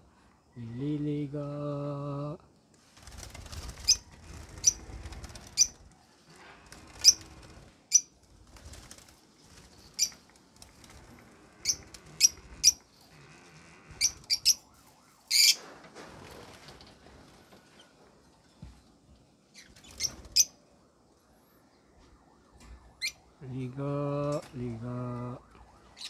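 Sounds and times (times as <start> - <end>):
wings flapping: 2.8 - 12.8, 14.0 - 17.9, 19.6 - 20.6
birds chirping shrilly: 3.8 - 5.8, 6.8 - 8.1, 9.8 - 10.2, 11.6 - 12.8, 15.3 - 15.6.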